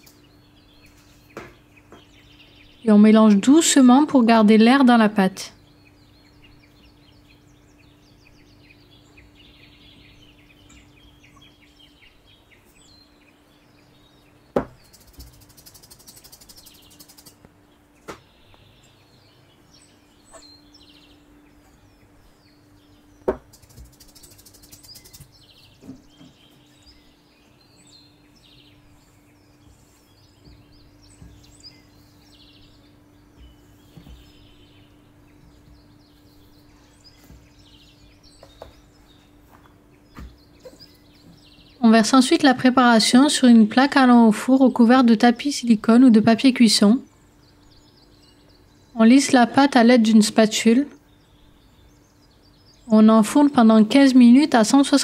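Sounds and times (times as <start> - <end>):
birds chirping: 0.0 - 55.0
faint steady hum: 0.0 - 55.0
sharp knocks: 14.6 - 14.9, 23.2 - 24.0.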